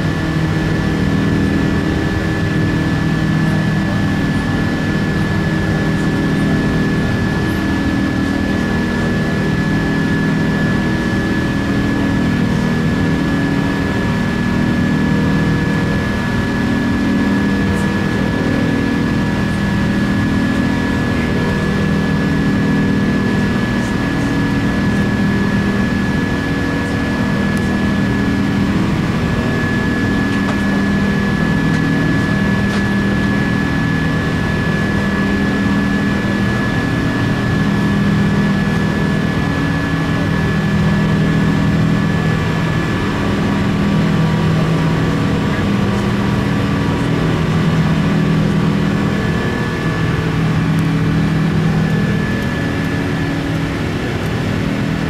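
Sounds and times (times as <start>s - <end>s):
jet engine drone: 0.0s - 55.0s
low hum: 0.0s - 55.0s.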